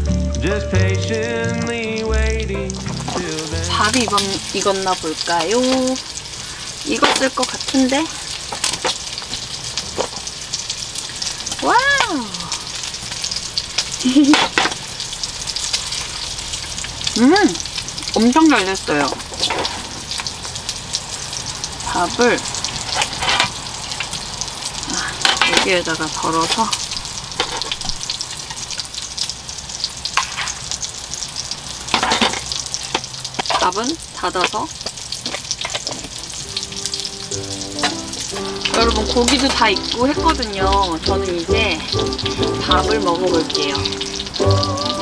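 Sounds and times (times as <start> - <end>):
meat sizzling on grill plate: 0.0 - 45.0.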